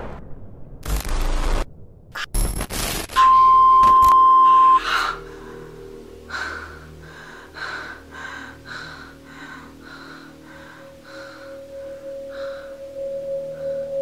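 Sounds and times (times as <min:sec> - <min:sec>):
crackling glitch noise: 0:00.8 - 0:04.3
loud steady beep tone: 0:03.2 - 0:05.6
low music drone: 0:04.1 - 0:14.0.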